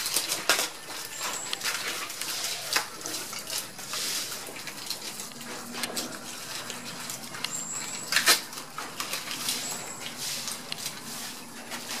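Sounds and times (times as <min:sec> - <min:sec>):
pigs chewing leaves: 0:00.0 - 0:12.0.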